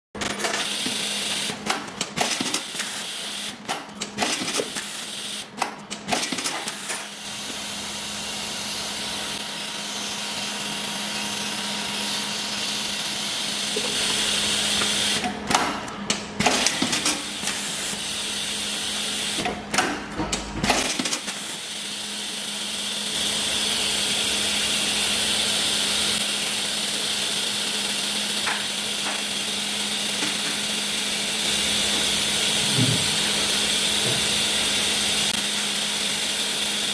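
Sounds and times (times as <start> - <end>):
sharp mechanical clicks and clunks: 0.2 - 7.2, 13.7 - 17.7, 19.3 - 21.6
bagging machine hum and hiss: 0.2 - 36.9.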